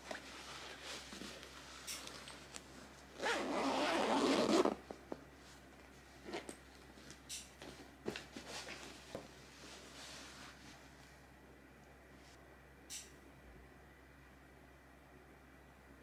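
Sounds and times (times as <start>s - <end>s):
fabric rustling: 0.0s - 7.1s, 8.1s - 11.0s
zipper being pulled closed: 3.2s - 4.8s.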